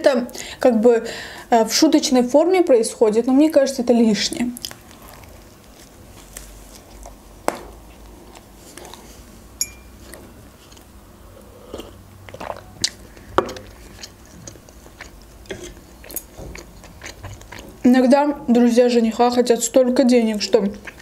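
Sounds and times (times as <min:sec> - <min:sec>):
chewing and biting food: 0:04.6 - 0:07.2, 0:11.7 - 0:17.9, 0:20.7 - 0:21.0
wet mouth noises: 0:10.1 - 0:17.9.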